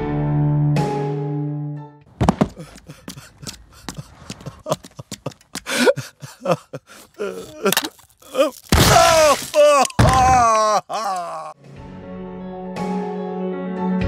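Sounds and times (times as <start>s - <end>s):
cartoon character sobbing: 5.7s - 11.6s.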